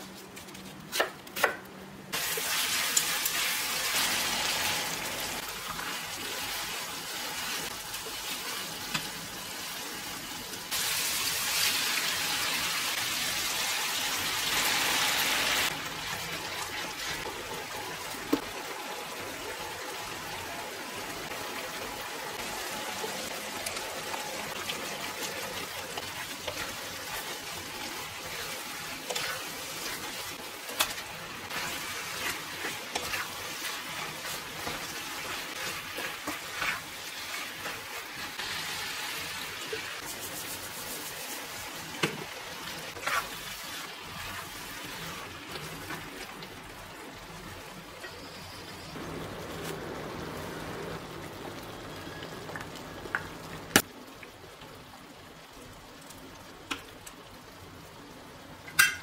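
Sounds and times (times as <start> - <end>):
meat sizzling in a frying pan: 2.1 - 53.9
spatula scraping a pan: 26.0 - 38.4, 42.9 - 46.0.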